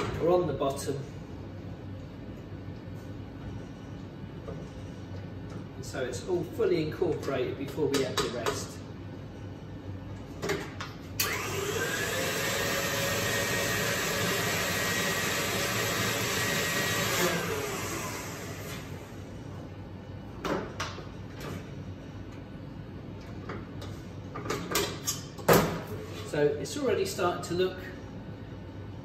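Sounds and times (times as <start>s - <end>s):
electric motor whining with air rush: 11.2s - 19.2s.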